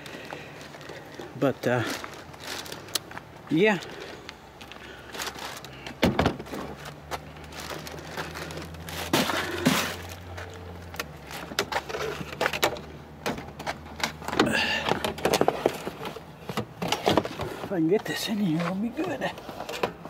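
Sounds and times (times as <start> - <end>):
crackles and knocks of debris bag: 0.0 - 4.1, 5.1 - 12.7.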